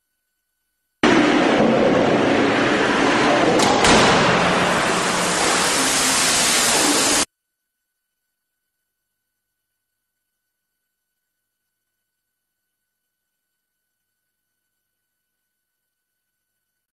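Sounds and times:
sharp knocks: 1.0s - 5.6s
loud rushing noise: 1.0s - 7.3s.

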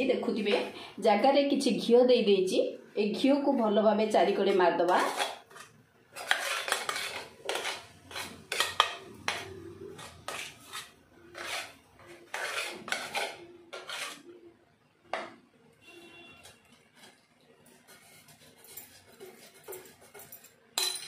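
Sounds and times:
plastic spoon scraping a metal tin: 4.8s - 14.3s.

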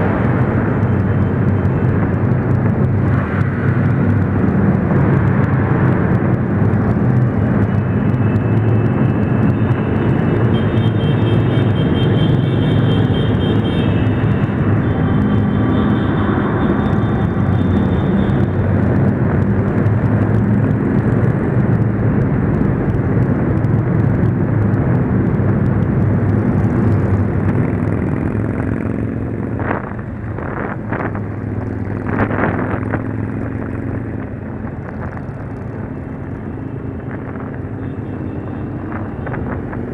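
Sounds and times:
road and wind noise: 0.0s - 39.9s.

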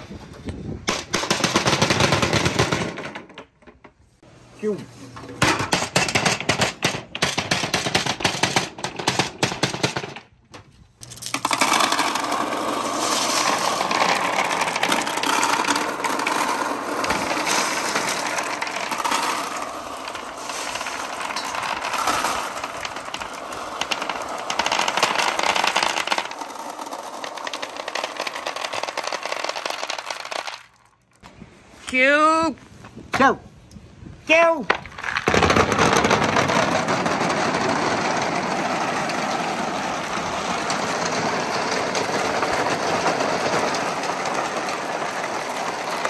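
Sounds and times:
billiard balls clacking: 0.8s - 4.1s, 5.2s - 31.2s, 34.7s - 46.0s
marbles clattering down wooden board: 5.4s - 10.4s, 11.0s - 31.2s, 34.7s - 46.0s.

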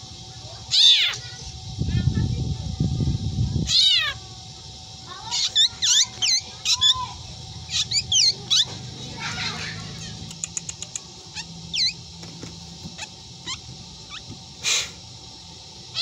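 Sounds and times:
harsh bird rasp: 5.2s - 15.1s
bird chirps: 7.6s - 12.0s, 13.0s - 14.3s
bird whistled calls: 7.7s - 12.0s
bird clicks: 10.2s - 12.0s.

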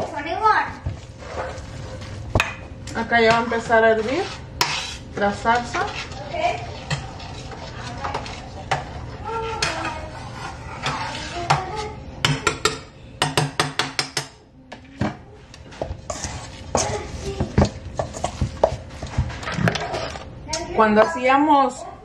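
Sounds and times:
metal spoon scraping a pot: 3.2s - 12.0s, 15.7s - 20.2s.

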